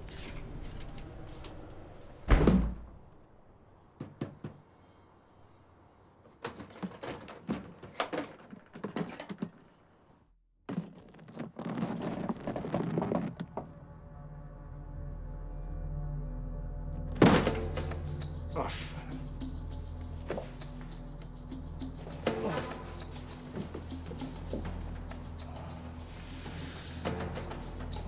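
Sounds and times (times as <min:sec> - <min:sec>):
door closing with a thump: 0:02.3 - 0:02.9.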